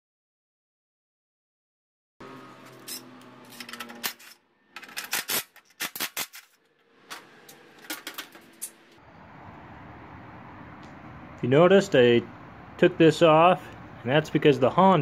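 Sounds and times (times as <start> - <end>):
metal bolts clinking and clattering: 2.7 - 9.0.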